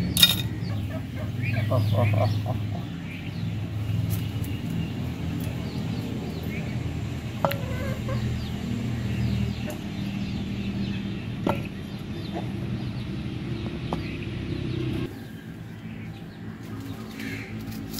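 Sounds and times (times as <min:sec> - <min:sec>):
hens clucking softly: 0:07.4 - 0:08.4.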